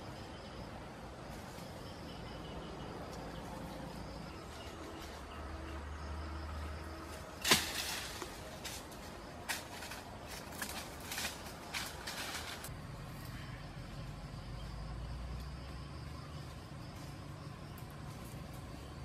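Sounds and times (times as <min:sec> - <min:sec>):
insects chirping: 0:00.0 - 0:19.0
footsteps crunching dry leaves: 0:07.5 - 0:12.7.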